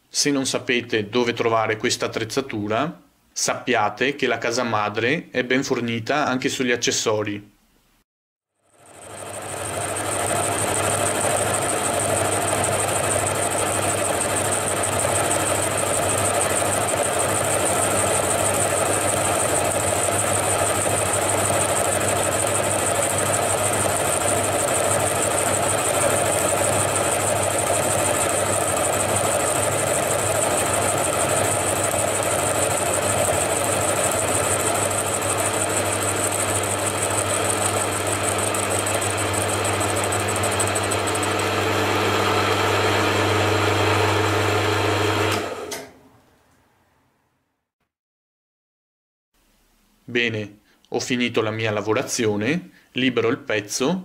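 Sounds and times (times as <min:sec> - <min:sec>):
milling machine hum with high whine: 0:08.7 - 0:45.9.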